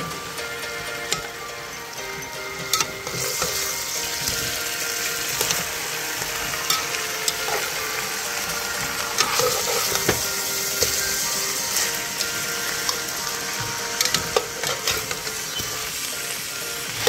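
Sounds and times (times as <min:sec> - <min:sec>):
vegetables sizzling in a pot: 0:00.0 - 0:17.0
spoon scraping and knocking a pot: 0:12.9 - 0:15.9.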